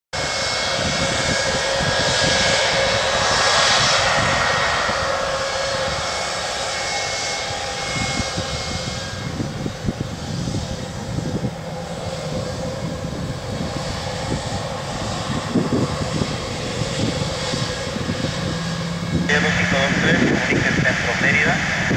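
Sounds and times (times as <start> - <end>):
jet engines hissing and whining: 0.2 - 21.9.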